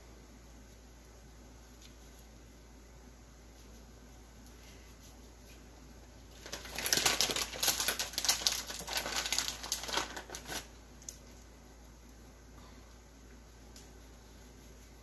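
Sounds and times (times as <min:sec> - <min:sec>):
plastic bag crinkling: 0:06.3 - 0:11.2.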